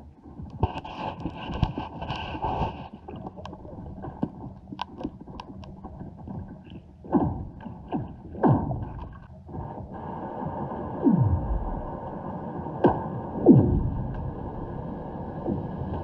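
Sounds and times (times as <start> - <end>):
ice clicks and ticks underwater: 0.0 - 9.6.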